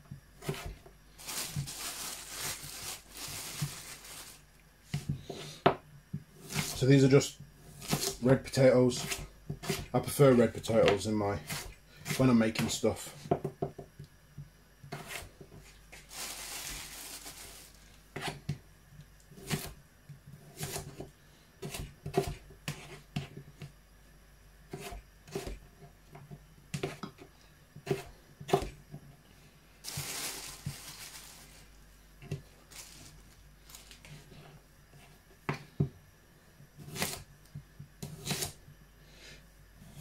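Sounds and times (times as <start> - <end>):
knife chopping on plastic board: 0.4 - 0.8, 7.8 - 8.2, 9.0 - 9.9, 19.4 - 19.8, 20.5 - 23.4, 24.7 - 27.2, 27.8 - 28.8
rustling: 0.4 - 5.1, 15.1 - 18.0, 29.8 - 34.5.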